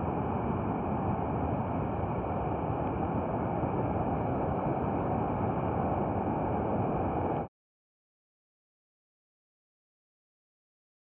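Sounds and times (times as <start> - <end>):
ocean surf breaking: 0.0 - 7.4.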